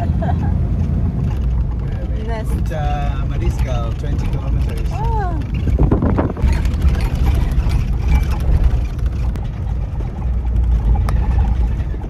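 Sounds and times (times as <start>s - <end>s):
engine and tyres rumbling: 0.0s - 12.0s.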